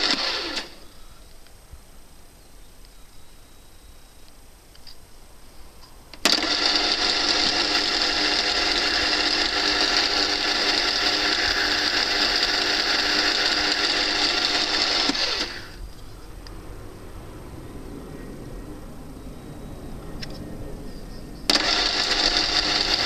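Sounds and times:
lathe motor whining: 0:00.0 - 0:01.0, 0:06.2 - 0:16.6, 0:21.4 - 0:23.0.

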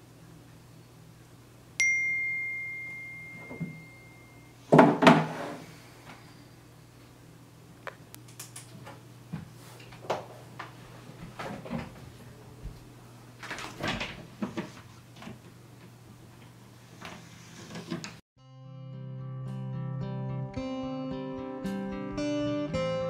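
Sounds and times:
faint steady hum: 0:00.0 - 0:17.2
closet door rattling open: 0:13.4 - 0:14.5.

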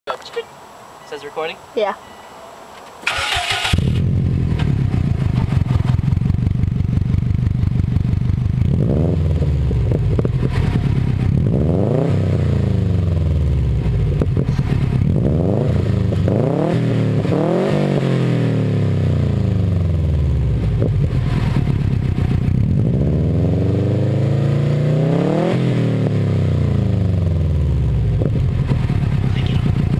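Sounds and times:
starter motor cranking: 0:03.0 - 0:04.0
car engine revving: 0:03.0 - 0:29.9
car engine idling loudly: 0:03.8 - 0:11.4, 0:13.1 - 0:15.2, 0:27.9 - 0:29.9.

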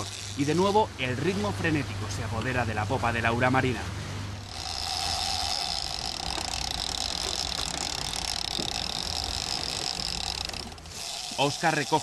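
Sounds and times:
fishing reel drag screaming: 0:00.0 - 0:00.8, 0:04.4 - 0:12.0
boat engine rumbling: 0:00.0 - 0:12.0.

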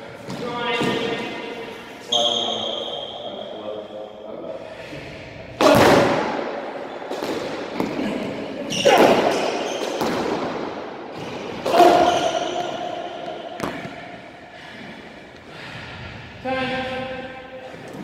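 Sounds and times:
racket hitting squash ball: 0:05.6 - 0:08.1, 0:08.7 - 0:14.4
ball smacking court walls: 0:08.9 - 0:14.1.

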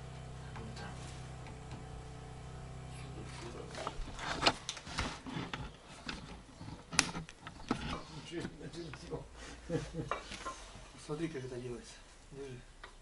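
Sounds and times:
low steady hum: 0:00.0 - 0:12.9
knocks and clicks of handling: 0:03.7 - 0:09.1.

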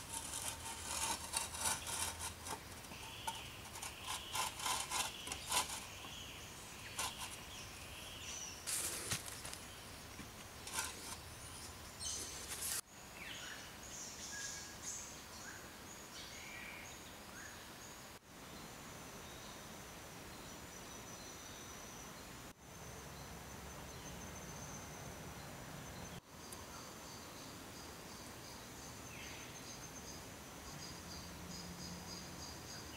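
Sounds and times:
birds chirping: 0:00.0 - 0:12.8
insects buzzing: 0:00.0 - 0:12.8.

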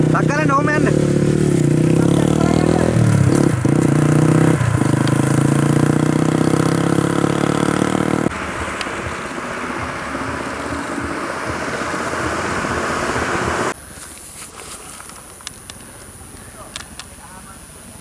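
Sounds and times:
motorcycle engine pulling away: 0:00.0 - 0:13.8
steady rushing noise: 0:08.3 - 0:14.5.

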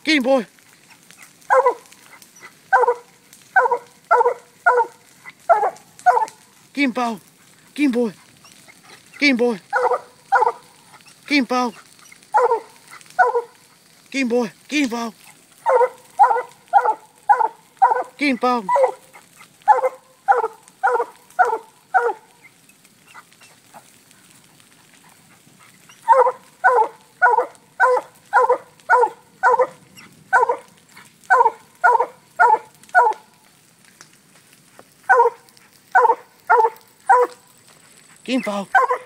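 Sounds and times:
dog barking: 0:01.2 - 0:06.4, 0:09.7 - 0:11.2, 0:11.8 - 0:13.7, 0:15.6 - 0:22.3, 0:25.6 - 0:33.3, 0:35.0 - 0:37.4, 0:38.7 - 0:39.0.

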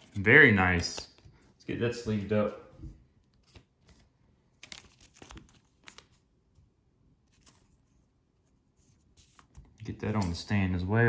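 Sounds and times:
plastic sleeve crinkling: 0:03.4 - 0:06.3.

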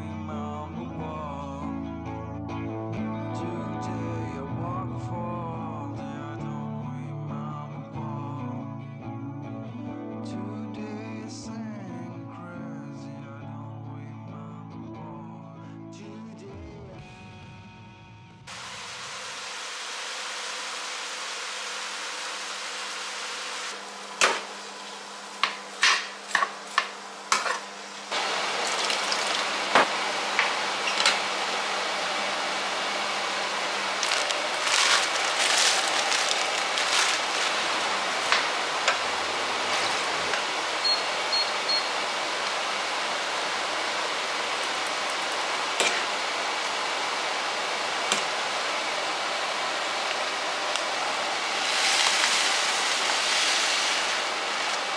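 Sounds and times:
vegetables sizzling in a frying pan: 0:18.5 - 0:54.9
short electronic beeps: 0:40.8 - 0:41.9.

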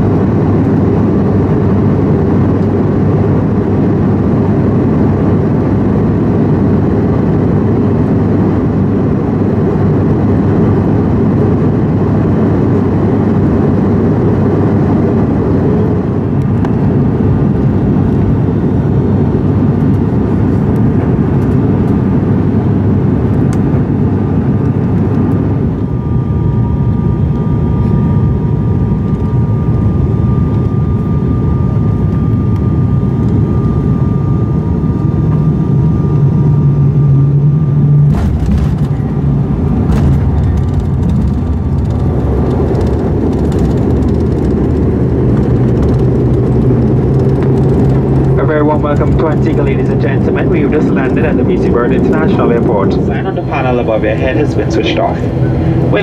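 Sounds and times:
airliner engine roar in cabin: 0:00.0 - 0:56.0
high-pitched whine: 0:25.1 - 0:56.0.

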